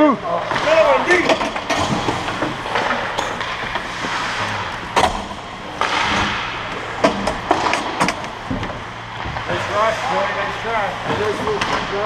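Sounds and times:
sticks and pucks knocking boards: 0.4 - 9.6
skates hissing on ice: 2.8 - 4.9.

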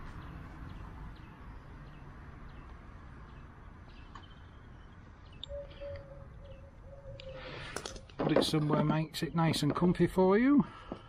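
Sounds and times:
small bird chirping: 0.0 - 7.8.

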